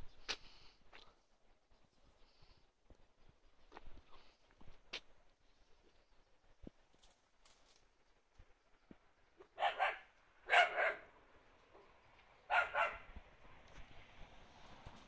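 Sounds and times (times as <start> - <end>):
dog barking: 9.5 - 11.1, 11.7 - 13.1.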